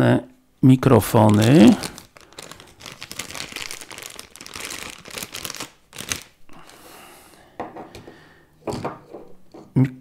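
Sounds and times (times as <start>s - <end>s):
plastic bag crinkling: 1.0s - 6.8s.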